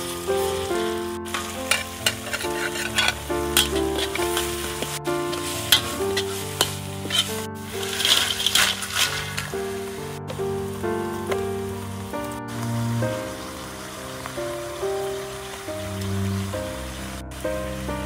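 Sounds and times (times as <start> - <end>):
background music: 0.0 - 18.0
oil sizzling: 0.0 - 18.0
spatula scraping a wok: 1.3 - 9.7.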